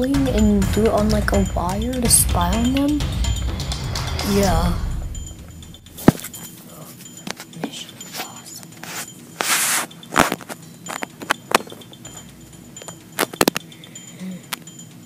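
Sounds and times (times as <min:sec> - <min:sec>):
toy clicks and taps on wood: 0:07.1 - 0:13.8.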